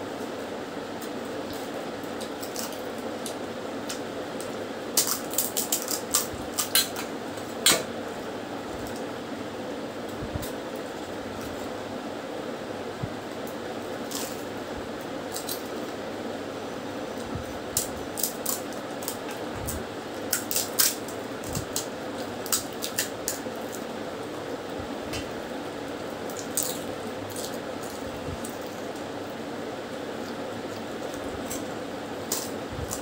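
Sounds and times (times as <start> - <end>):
background hum: 0.0 - 33.0
crisp shells cracking: 1.5 - 7.1, 14.0 - 14.5, 15.3 - 15.8, 17.7 - 19.4, 20.2 - 23.9, 26.2 - 29.1, 30.2 - 33.0.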